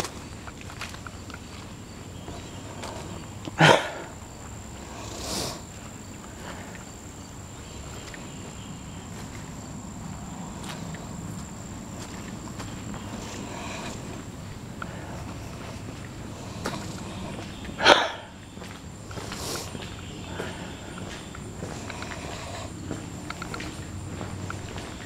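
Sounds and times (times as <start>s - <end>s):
footsteps on grass: 7.6s - 25.0s.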